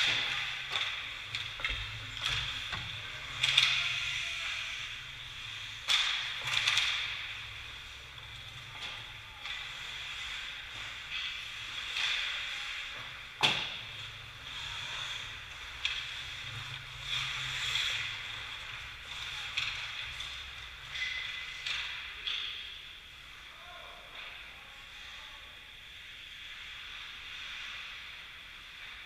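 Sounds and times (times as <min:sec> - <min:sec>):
stick and puck clacks: 0:00.0 - 0:07.4, 0:08.2 - 0:13.8, 0:14.5 - 0:22.8
skates scraping on ice: 0:09.4 - 0:22.0, 0:25.8 - 0:29.0.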